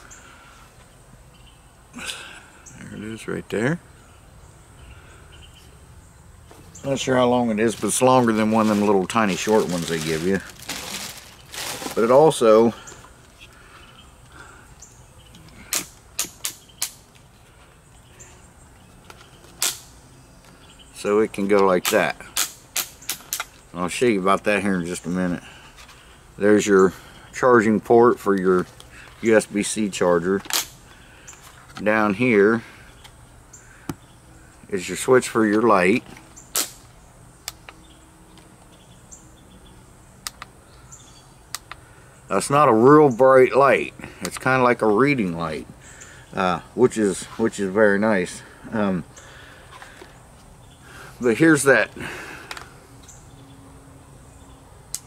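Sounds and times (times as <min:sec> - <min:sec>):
plastic fan clicks: 0:40.2 - 0:40.6, 0:41.5 - 0:41.8.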